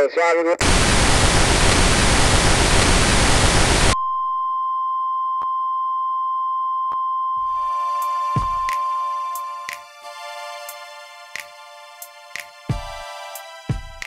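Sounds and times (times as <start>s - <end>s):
loud static hiss: 0.6s - 4.0s
steady high beep tone: 4.0s - 9.8s
music with held chords: 7.4s - 14.0s.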